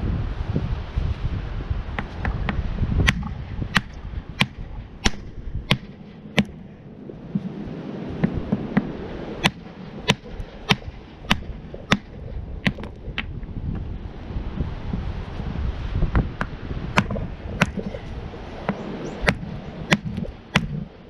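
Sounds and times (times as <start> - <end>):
rock hammer striking rock: 2.0 - 6.6, 9.4 - 12.9, 18.7 - 20.8.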